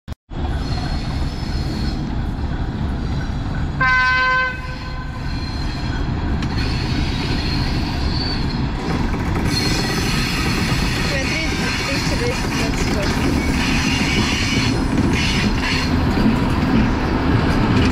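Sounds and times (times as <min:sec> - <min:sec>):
diesel locomotive rumbling: 0:00.3 - 0:17.9
train horn blast: 0:03.8 - 0:05.4.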